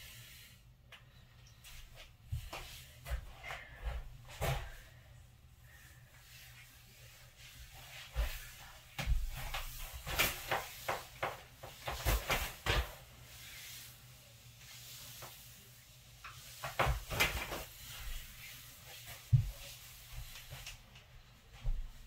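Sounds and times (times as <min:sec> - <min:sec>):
clothing rustling: 0:05.7 - 0:22.0.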